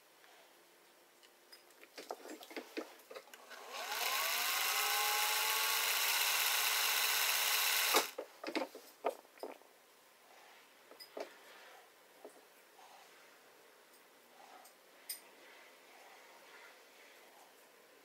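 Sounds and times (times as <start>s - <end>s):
sewing machine running: 3.4s - 8.2s.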